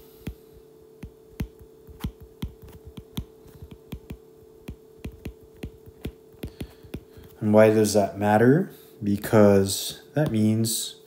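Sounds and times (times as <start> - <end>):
faint steady hum: 0.0 - 11.0
stylus tapping on glass screen: 1.0 - 7.4.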